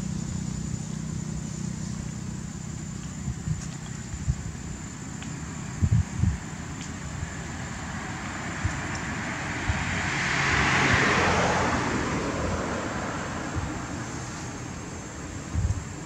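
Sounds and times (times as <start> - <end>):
low outdoor rumble: 0.0 - 16.0
motor vehicle passing: 6.4 - 16.0.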